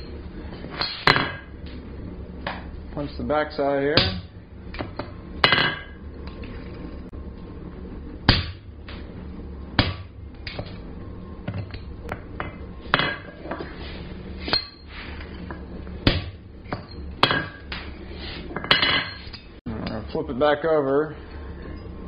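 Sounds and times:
low hum: 0:00.0 - 0:22.0
hammer striking punch on hot steel: 0:00.8 - 0:01.6, 0:03.9 - 0:06.0, 0:08.3 - 0:09.0, 0:09.8 - 0:10.7, 0:16.0 - 0:17.8.

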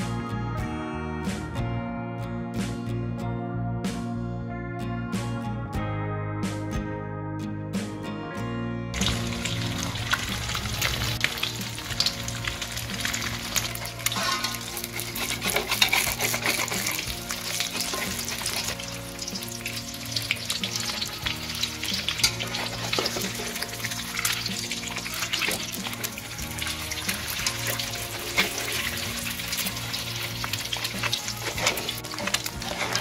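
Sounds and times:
eggs sizzling in hot oil: 0:09.0 - 0:33.0
metal spatula scraping pan: 0:13.1 - 0:19.0, 0:21.9 - 0:24.4, 0:27.0 - 0:33.0.

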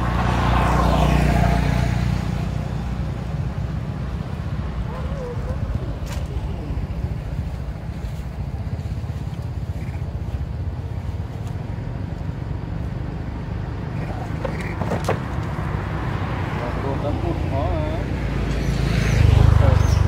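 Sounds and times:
wind buffeting microphone: 0:02.9 - 0:11.8.

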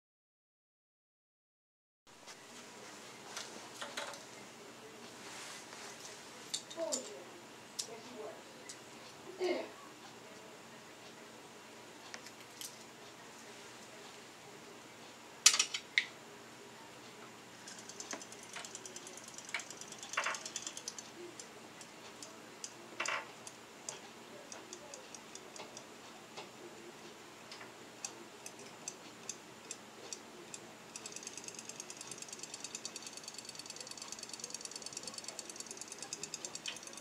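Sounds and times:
toy tail motor ticking: 0:17.7 - 0:22.8, 0:30.9 - 0:37.0
scattered clicks: 0:17.7 - 0:26.5, 0:27.5 - 0:37.0.

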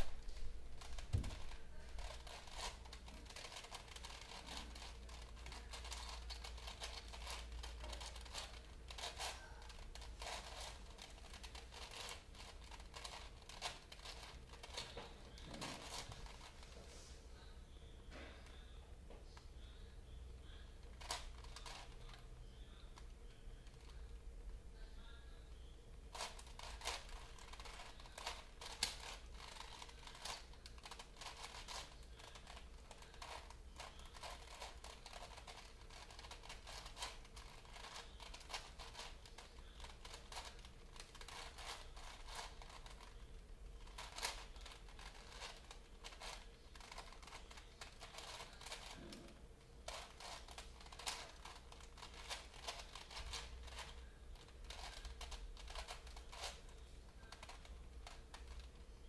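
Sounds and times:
plastic puzzle cube clicking: 0:00.8 - 0:14.9, 0:26.1 - 0:43.2, 0:43.8 - 0:48.9, 0:49.9 - 0:56.6.

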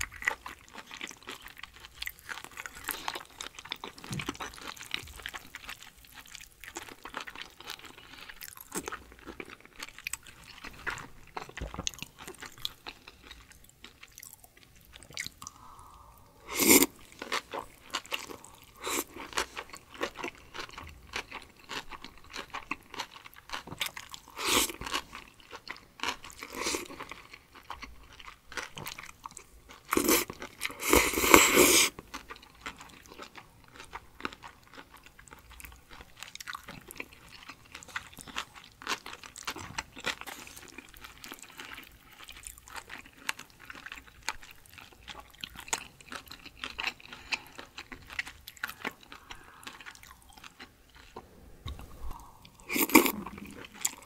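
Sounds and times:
slurping and chewing noodles: 0:00.0 - 0:54.0.

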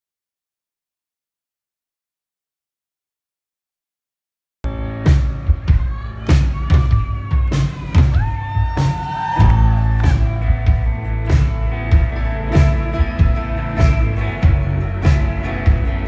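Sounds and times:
bass: 0:04.6 - 0:16.0
keyboard: 0:04.7 - 0:16.0
acoustic guitar: 0:09.4 - 0:16.0.

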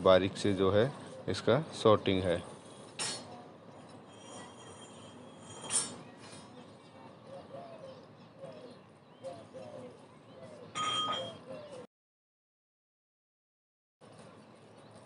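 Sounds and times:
faint bird calls: 0:04.4 - 0:11.9
dove cooing: 0:07.2 - 0:11.9.

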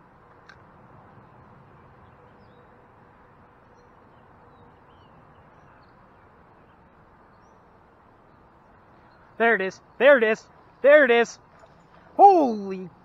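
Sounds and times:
bird chirps: 0:03.7 - 0:13.0.

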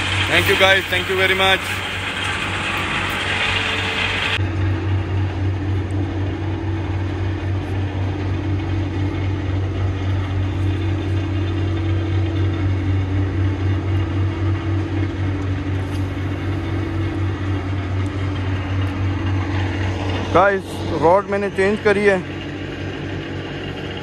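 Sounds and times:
constant hum: 0:00.0 - 0:24.0
low mechanical drone: 0:00.0 - 0:24.0.

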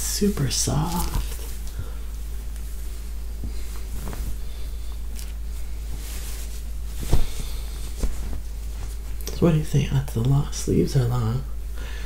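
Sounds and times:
knit fabric rustling: 0:00.0 - 0:01.7, 0:02.3 - 0:09.5
steady low hum: 0:00.0 - 0:12.0.

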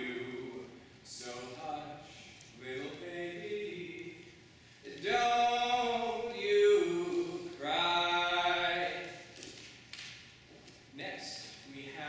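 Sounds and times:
man singing unaccompanied: 0:00.0 - 0:09.2.

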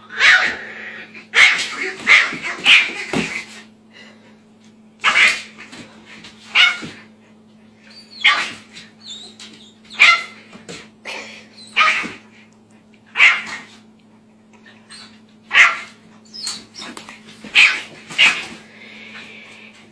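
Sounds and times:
puppy yapping: 0:00.1 - 0:00.6, 0:05.0 - 0:05.6, 0:06.5 - 0:07.0, 0:07.9 - 0:10.4, 0:11.6 - 0:12.2, 0:13.1 - 0:13.8, 0:14.8 - 0:18.5.

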